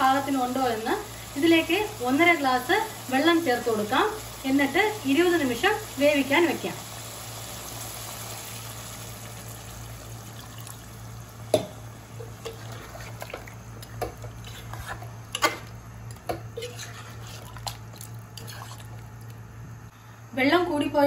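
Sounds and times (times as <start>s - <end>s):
water pouring into a pot: 0.2s - 11.5s, 16.6s - 19.2s
spoon stirring in a pot: 12.2s - 19.3s.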